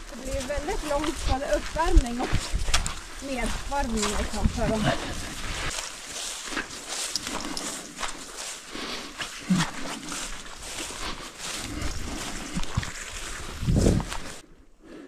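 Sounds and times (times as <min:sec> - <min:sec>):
footsteps through undergrowth: 0:00.0 - 0:14.5
low rumble: 0:11.6 - 0:14.4.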